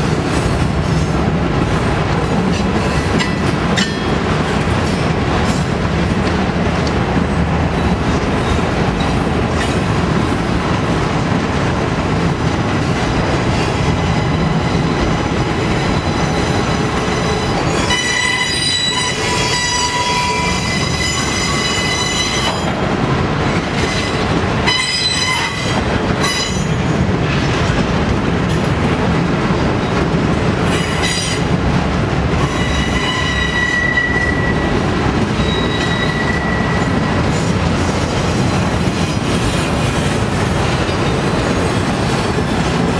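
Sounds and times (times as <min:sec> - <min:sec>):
freight train wheels rumbling: 0:00.0 - 0:42.9
high wheel squeal: 0:15.8 - 0:22.6, 0:32.4 - 0:34.6, 0:35.4 - 0:37.0.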